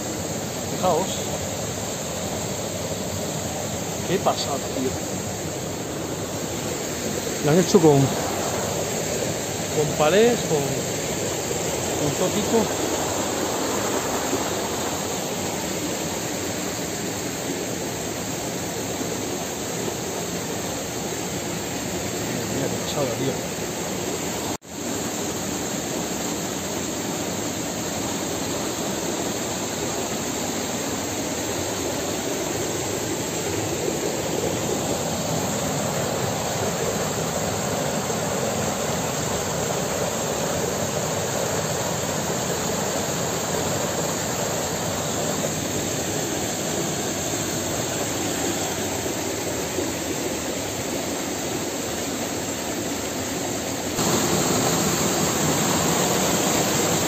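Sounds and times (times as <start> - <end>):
water rushing into rock pool: 3.2 - 17.0, 54.0 - 57.0.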